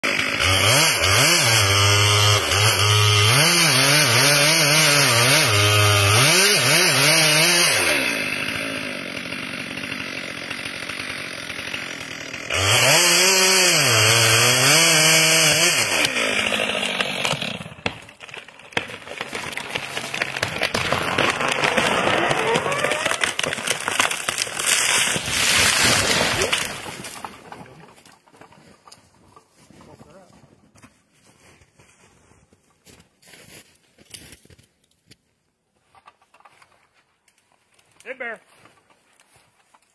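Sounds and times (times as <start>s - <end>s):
chainsaw cutting tree trunk: 0.0s - 28.5s
trunk cracking as it splits: 9.2s - 29.4s.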